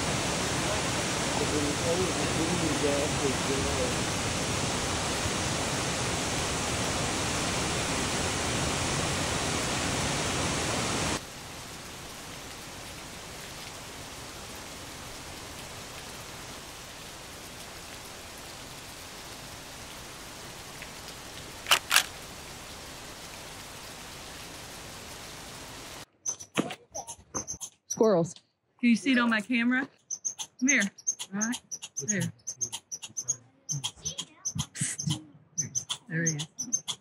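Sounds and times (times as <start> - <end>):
even hiss: 0.0 - 4.4
mountain stream rushing: 0.0 - 20.3
sharp clicks: 21.6 - 22.1.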